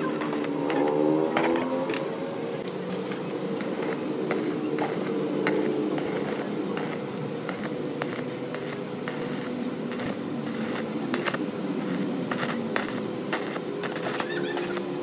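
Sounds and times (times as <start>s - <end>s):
arc welding electrode crackling: 0.0s - 2.1s, 2.7s - 15.0s.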